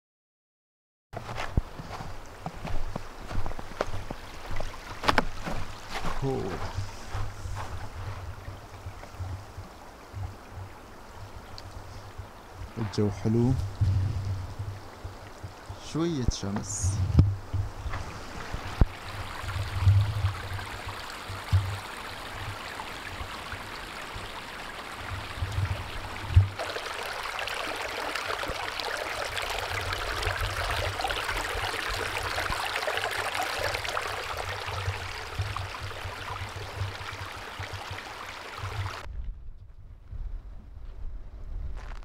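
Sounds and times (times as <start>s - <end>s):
brook running over rocks: 1.2s - 39.1s
thumps on microphone: 16.6s - 18.9s.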